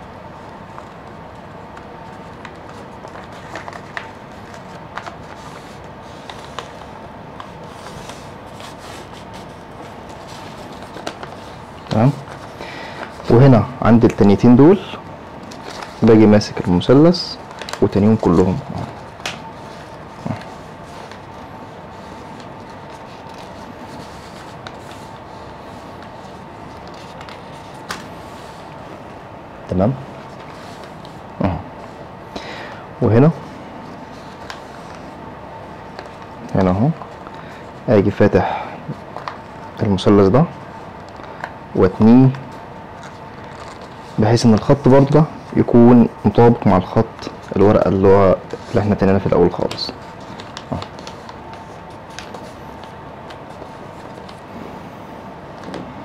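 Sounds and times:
steady background hum: 0.0s - 56.0s
paper being folded and creased: 0.4s - 13.4s, 15.4s - 28.7s, 30.2s - 31.2s, 33.8s - 37.7s, 38.9s - 39.7s, 43.0s - 46.4s, 47.0s - 54.6s
faint paper rustles: 0.4s - 29.2s, 29.9s - 56.0s.

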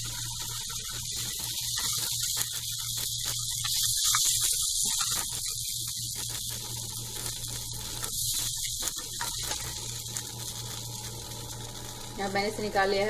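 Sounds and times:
hot oil hissing in a pan: 0.0s - 13.0s
spatula scraping a pan: 1.4s - 6.6s.

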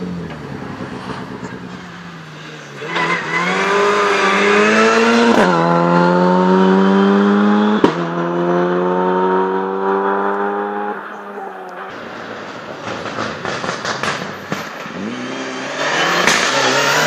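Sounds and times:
car engine accelerating hard: 0.0s - 17.0s
sharp crack: 12.2s - 14.9s.

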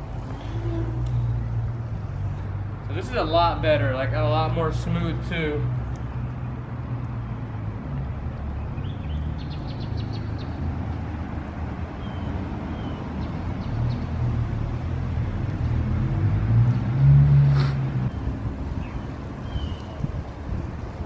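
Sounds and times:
bird chirps: 18.1s - 20.0s.

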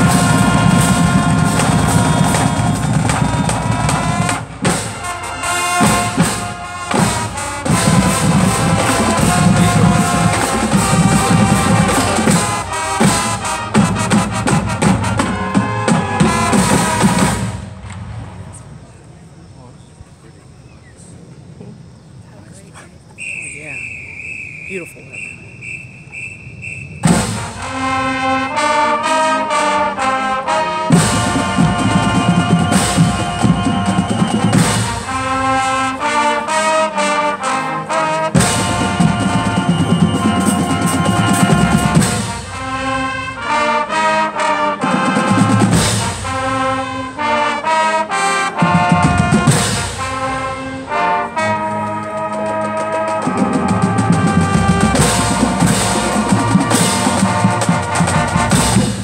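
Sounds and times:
drum and percussion hits: 0.0s - 18.2s, 27.0s - 28.2s, 30.9s - 35.4s, 38.3s - 43.0s, 44.8s - 46.7s, 48.6s - 50.6s, 52.0s - 59.0s
marching band playing: 0.0s - 19.6s, 22.4s - 59.0s.

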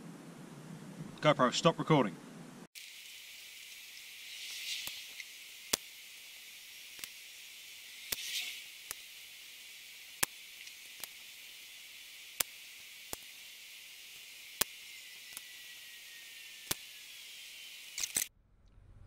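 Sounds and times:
faint hiss: 2.7s - 18.0s
sharp irregular ticks: 4.3s - 18.3s.

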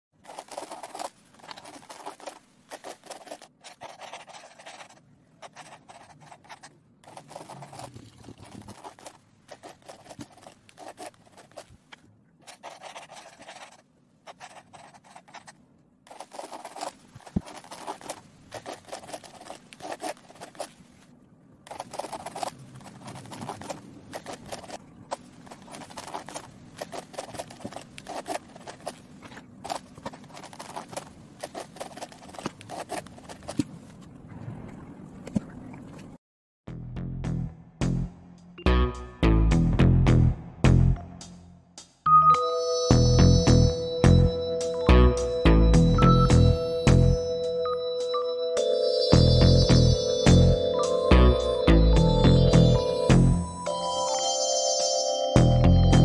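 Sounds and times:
pencil scratching on paper: 0.2s - 11.8s, 12.4s - 20.8s, 21.7s - 24.8s, 25.4s - 29.0s, 29.7s - 33.6s.

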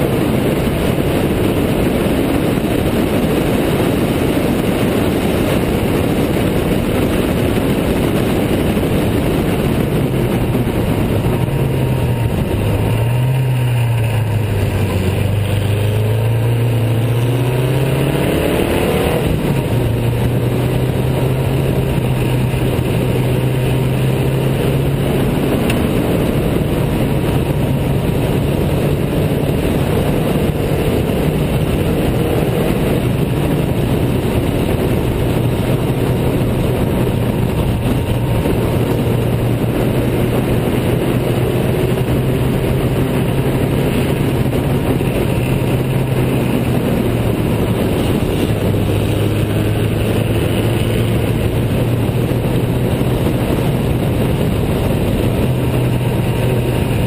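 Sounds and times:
car engine running hard: 0.0s - 57.0s
wind noise: 0.0s - 57.0s.

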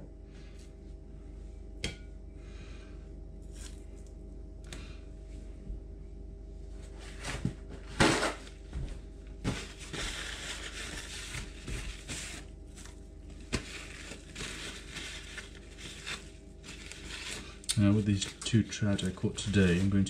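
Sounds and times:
low steady hum: 0.0s - 20.0s
paper towel rustling on wood: 9.4s - 20.0s.

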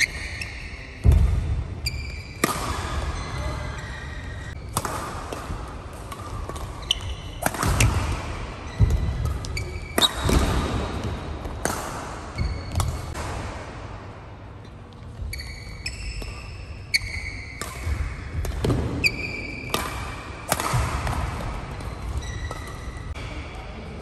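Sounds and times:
rackets striking shuttlecock: 1.0s - 3.1s, 4.5s - 13.9s, 15.8s - 23.2s
shoes squeaking on court: 1.8s - 4.6s, 6.4s - 10.3s, 12.4s - 13.0s, 15.0s - 17.6s, 21.4s - 23.1s.

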